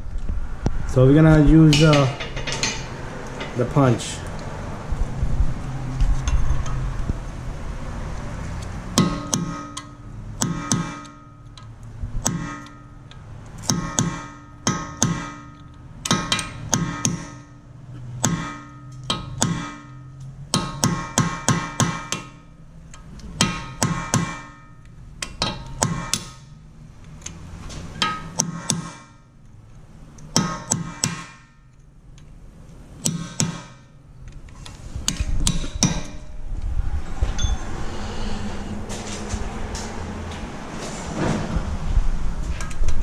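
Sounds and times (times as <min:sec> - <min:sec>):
hammer striking steel punch: 0:09.0 - 0:11.5, 0:12.2 - 0:13.0, 0:13.6 - 0:17.6, 0:18.2 - 0:22.6, 0:23.4 - 0:26.6, 0:28.0 - 0:29.3, 0:30.3 - 0:31.7, 0:33.0 - 0:34.0, 0:35.1 - 0:36.3
metal rotor ringing: 0:12.3 - 0:17.7.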